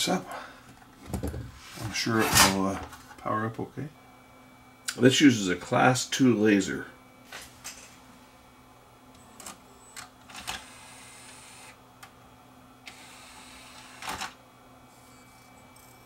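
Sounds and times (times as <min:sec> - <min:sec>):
disc drive motor whirs: 0:09.0 - 0:16.0.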